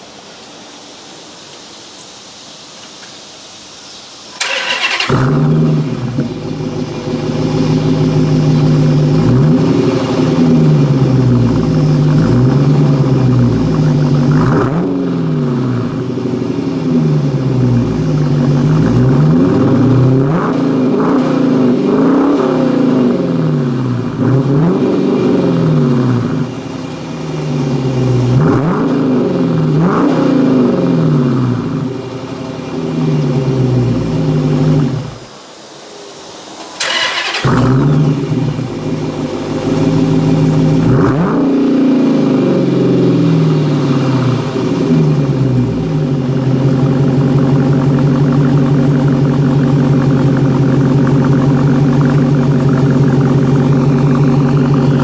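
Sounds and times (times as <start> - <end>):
car engine revving: 4.4 - 35.3, 36.6 - 55.0.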